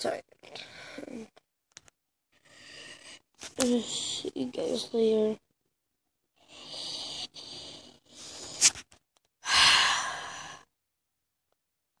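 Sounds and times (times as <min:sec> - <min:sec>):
person exhaling breathily: 0:09.4 - 0:10.7.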